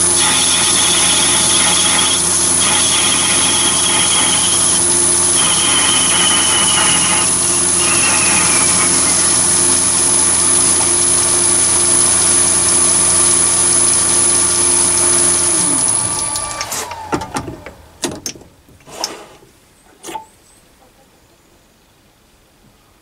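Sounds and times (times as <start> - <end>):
lathe winding down: 0.0 - 17.7
lathe whining: 0.0 - 18.0
sharp clicks and knocks: 16.1 - 19.2.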